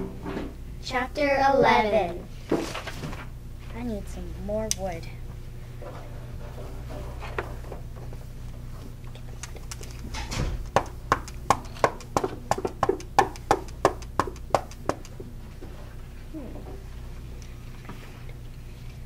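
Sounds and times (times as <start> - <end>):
low steady hum: 0.0 - 19.0
hatchet chopping wood knocks: 10.6 - 15.1.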